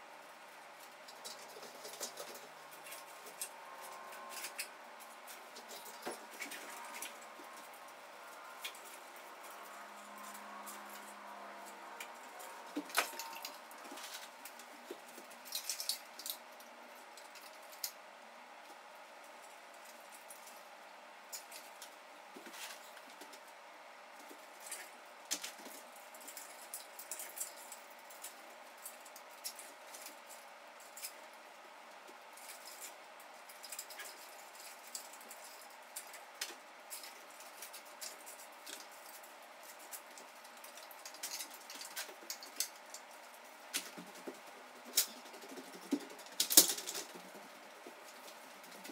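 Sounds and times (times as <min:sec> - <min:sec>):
room hum: 0:00.0 - 0:48.9
clicks taps and rustles: 0:32.0 - 0:48.9.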